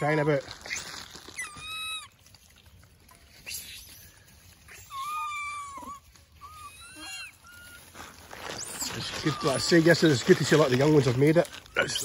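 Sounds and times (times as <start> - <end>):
macaque crying: 3.5 - 12.0.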